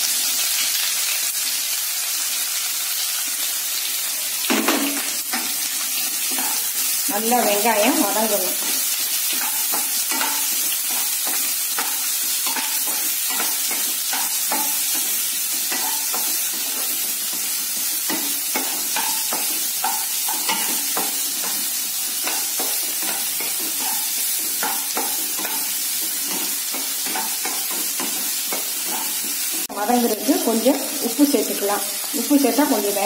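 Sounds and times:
onions sizzling in hot oil: 0.0s - 33.0s.

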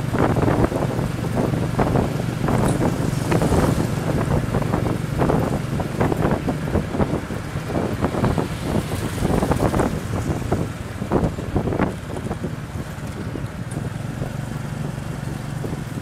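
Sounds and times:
vehicle engine hum: 0.0s - 16.0s
wind buffeting microphone: 0.0s - 16.0s.

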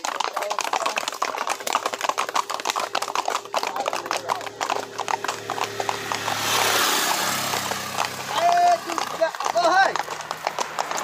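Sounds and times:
hooves clopping on asphalt: 0.0s - 11.0s
faint engine hum: 1.4s - 11.0s.

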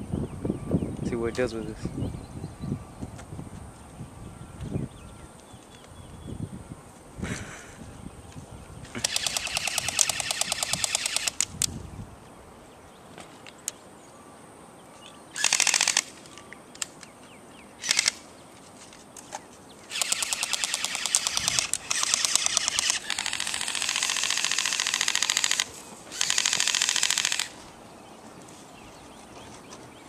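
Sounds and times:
airsoft guns firing full auto: 9.0s - 11.4s, 15.4s - 16.1s, 17.8s - 18.2s, 19.9s - 27.6s.

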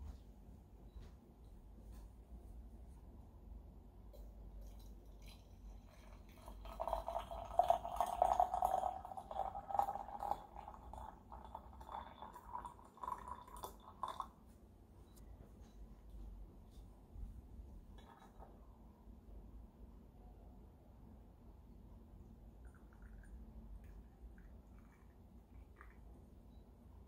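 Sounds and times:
water pouring into glass pitcher: 4.2s - 14.4s, 22.5s - 26.6s.

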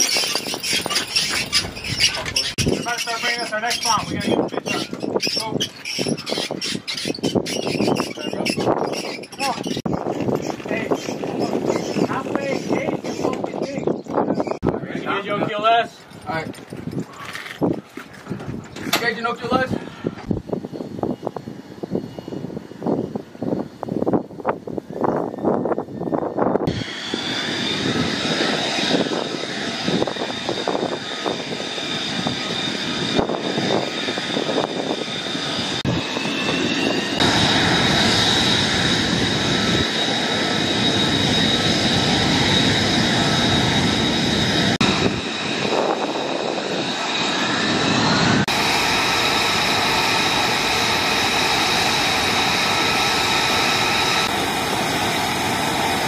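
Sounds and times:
jet engine whine and rush: 0.0s - 56.0s.

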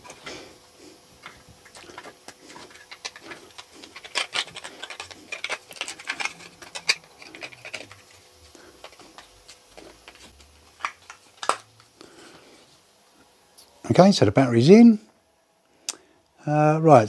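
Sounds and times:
battery clicks and rustles: 1.2s - 12.0s.

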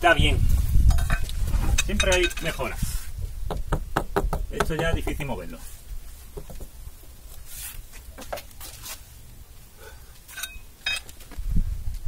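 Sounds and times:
bricks and tools clinking: 10.3s - 11.2s.

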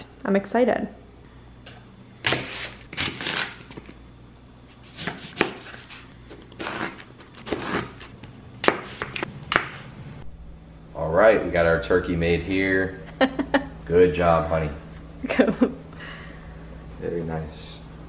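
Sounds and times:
knife chopping on cutting board: 8.6s - 9.8s.

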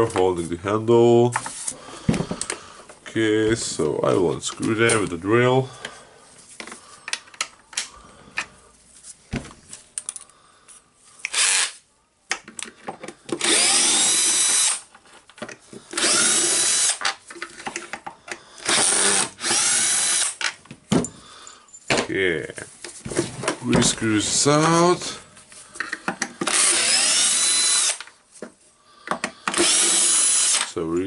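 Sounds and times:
drill motor whining: 11.3s - 11.8s, 13.4s - 14.8s, 15.9s - 17.0s, 18.6s - 20.4s, 26.4s - 28.1s, 29.5s - 30.7s.

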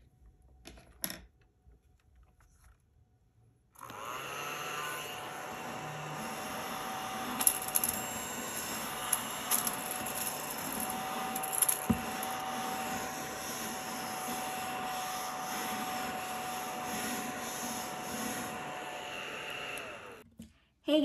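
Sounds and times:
mini vacuum whining: 3.8s - 20.3s.

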